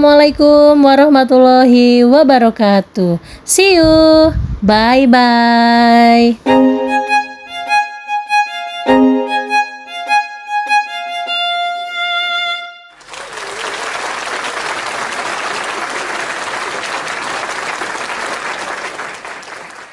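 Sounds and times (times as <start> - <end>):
bright music tune: 6.4 - 13.0
applause: 12.9 - 19.9.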